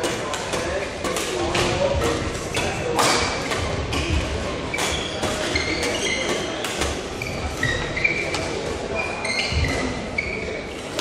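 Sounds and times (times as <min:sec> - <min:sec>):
rackets striking shuttlecock: 0:00.0 - 0:07.1
shoes squeaking on floor: 0:02.1 - 0:11.0.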